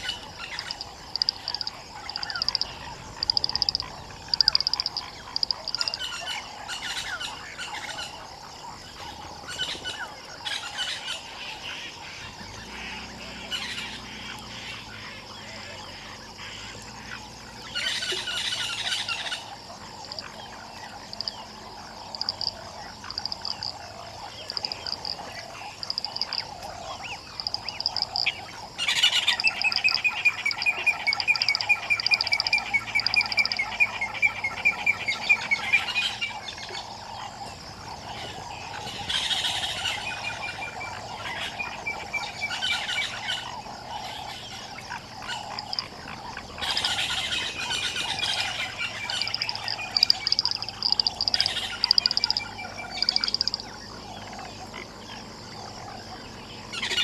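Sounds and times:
rapid pulsed calls: 0.0s - 7.1s, 20.2s - 36.4s, 38.7s - 54.4s
frogs and birds calling: 0.0s - 57.0s.

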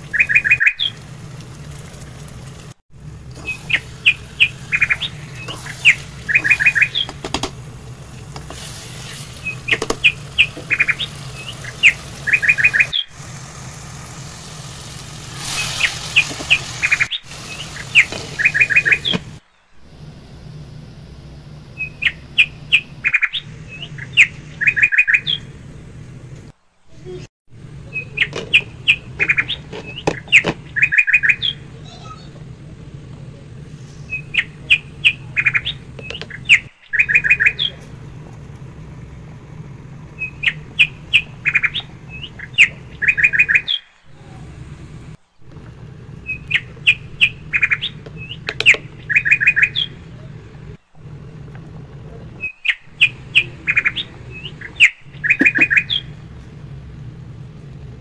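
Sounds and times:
low steady hum: 0.0s - 58.0s
bird chirps: 0.1s - 1.0s, 3.4s - 7.4s, 8.4s - 13.2s, 15.5s - 19.7s, 21.7s - 25.6s, 27.8s - 32.3s, 33.9s - 38.2s, 40.1s - 44.4s, 46.2s - 50.8s, 52.4s - 56.2s.

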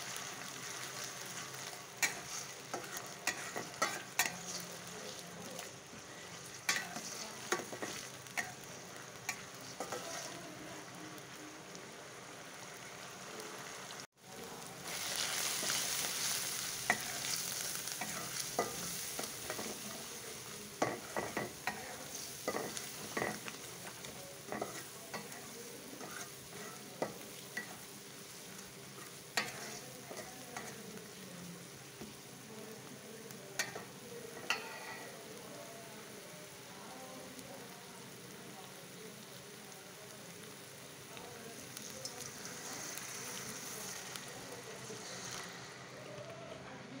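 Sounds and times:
onions sizzling in oil: 0.0s - 47.0s
metal spatula scraping pan: 0.6s - 4.8s, 5.6s - 10.4s, 20.8s - 27.8s, 29.0s - 30.8s, 34.4s - 35.1s.

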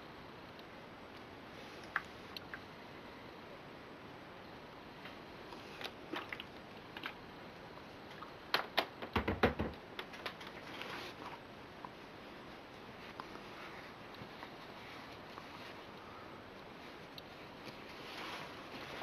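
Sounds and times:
knocks and dull thump: 9.0s - 9.8s
fabric rustling: 16.7s - 19.0s.

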